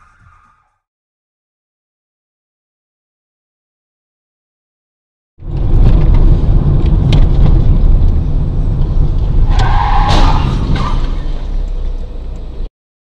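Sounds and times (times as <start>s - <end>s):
car low rumble: 5.4s - 12.7s.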